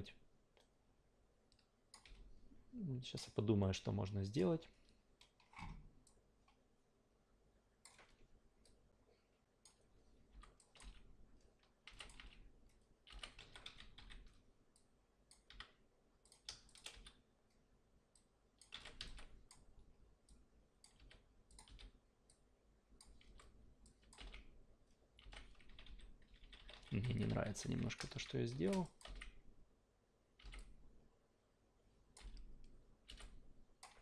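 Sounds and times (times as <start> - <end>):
faint computer keyboard typing: 1.5 - 2.4, 4.7 - 6.6, 7.8 - 8.8, 9.6 - 29.5, 30.4 - 30.8, 32.1 - 34.0.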